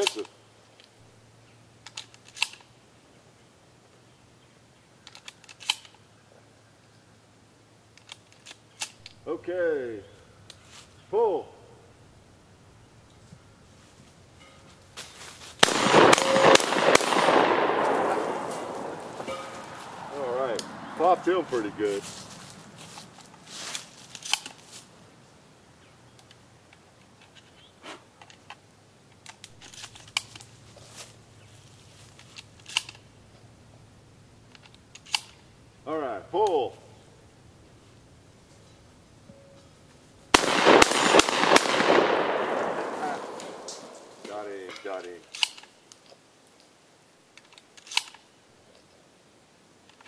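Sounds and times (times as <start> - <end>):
shotgun reloading clicks: 0.0 - 1.0, 1.8 - 2.7, 5.0 - 6.0, 7.9 - 9.2, 15.6 - 19.8, 24.1 - 24.6, 32.2 - 33.0, 34.5 - 35.5, 40.3 - 46.0, 47.4 - 48.3
shotgun shells clicking into magazine: 5.0 - 6.0, 45.2 - 46.1, 47.4 - 48.2.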